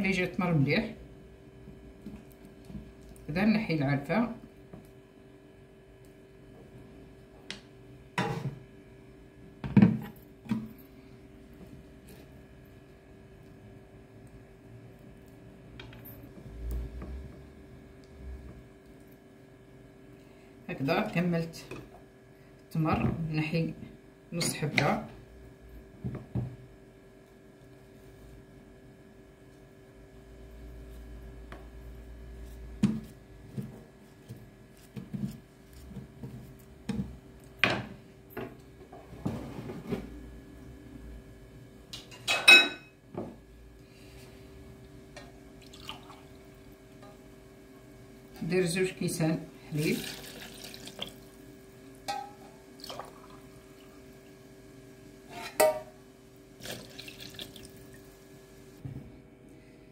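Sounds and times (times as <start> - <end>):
faint steady hum: 0.0 - 59.9
milk pouring into plastic jar: 50.0 - 51.2, 56.6 - 57.8.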